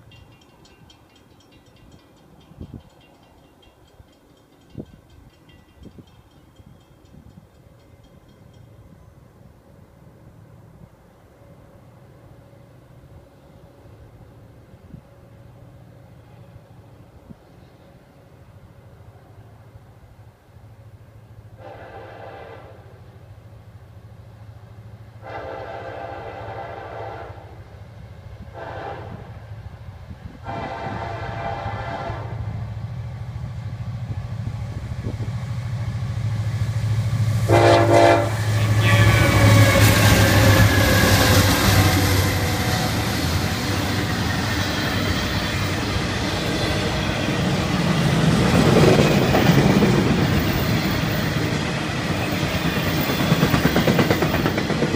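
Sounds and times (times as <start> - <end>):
locomotive horn blasts: 21.6 - 23.0, 25.2 - 27.6, 28.5 - 29.4, 30.4 - 32.5, 37.5 - 42.8
locomotive engine rumble: 28.0 - 54.9
train wheels clattering: 36.9 - 54.9.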